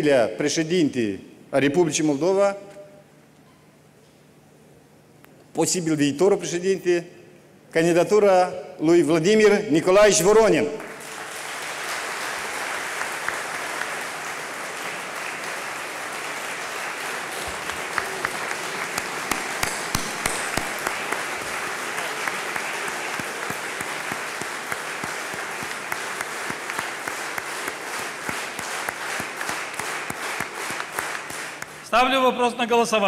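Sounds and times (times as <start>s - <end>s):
crowd applauding: 10.8s - 31.9s.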